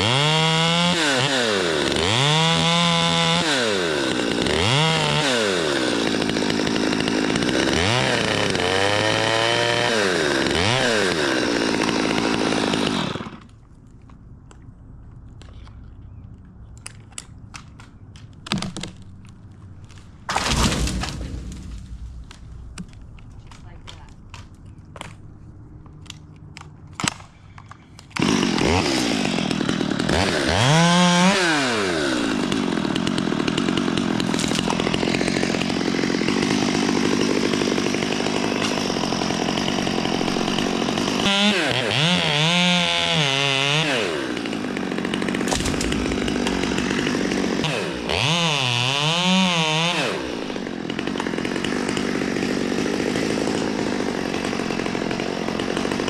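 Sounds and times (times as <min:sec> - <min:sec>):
chainsaw cutting wood: 0:00.0 - 0:13.6, 0:16.9 - 0:25.2, 0:26.0 - 0:56.0.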